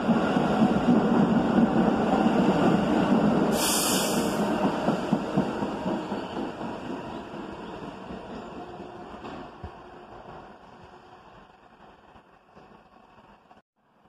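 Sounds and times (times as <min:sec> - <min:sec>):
subway train running on track: 0:00.0 - 0:14.0
high hiss burst: 0:03.6 - 0:04.4.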